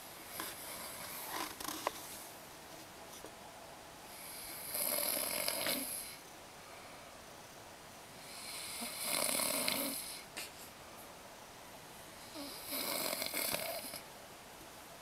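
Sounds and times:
person snoring: 4.2s - 6.2s, 8.2s - 10.2s, 12.2s - 14.0s.

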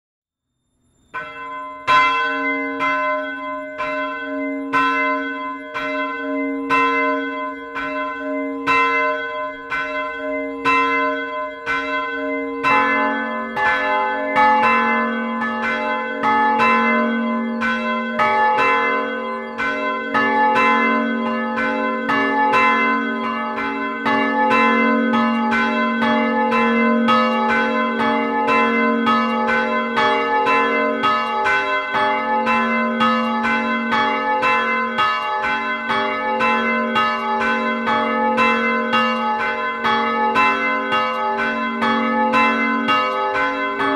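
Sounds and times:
higher church bell ringing: 1.1s - 43.9s
lower church bell ringing: 1.1s - 43.9s.

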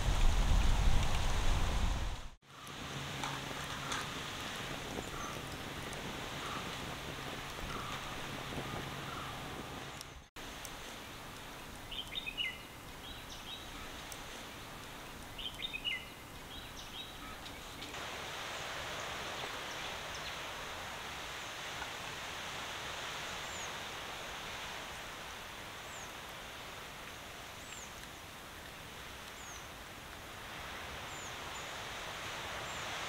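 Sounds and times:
steady hiss: 0.0s - 33.0s
small birds chirping: 11.6s - 18.0s.

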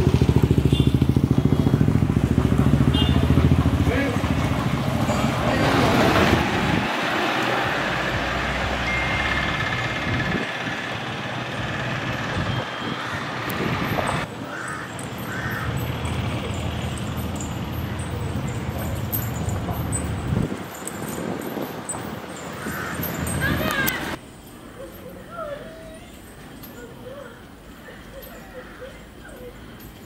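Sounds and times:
vehicles passing: 0.0s - 30.0s
crows cawing: 12.9s - 13.4s, 14.4s - 16.0s, 22.5s - 23.3s.

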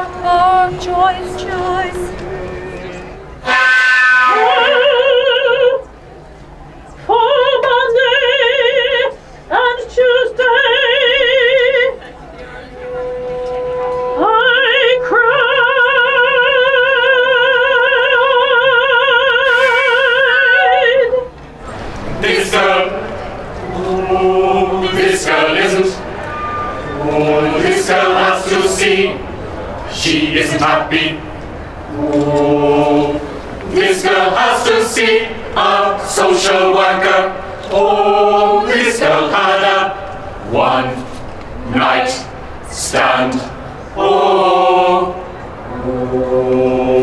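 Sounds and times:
woman singing operatically: 0.0s - 2.4s, 3.4s - 5.8s, 7.1s - 12.0s, 14.1s - 21.3s
choir singing held notes: 0.0s - 5.9s, 12.7s - 47.0s
plain steady note: 12.6s - 16.0s.

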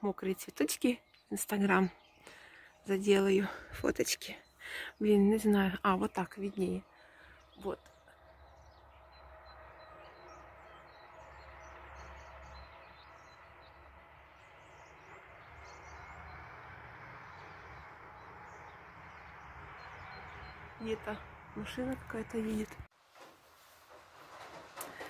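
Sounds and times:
small birds chirping: 0.0s - 22.9s
distant car driving by: 8.1s - 22.9s.

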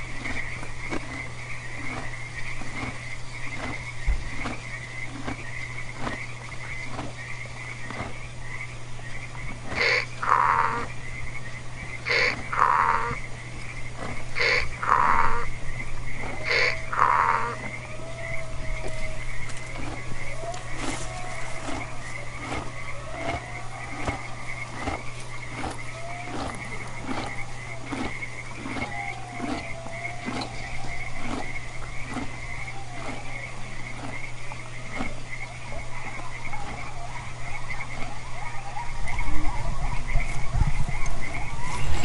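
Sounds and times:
wavering animal calls: 8.4s - 40.6s, 41.2s - 42.0s
short repeating animal call: 9.8s - 10.9s, 12.0s - 13.2s, 14.4s - 15.4s, 16.4s - 17.7s
low rumble: 40.8s - 42.0s
high-pitched pulsing chorus: 41.4s - 42.0s.

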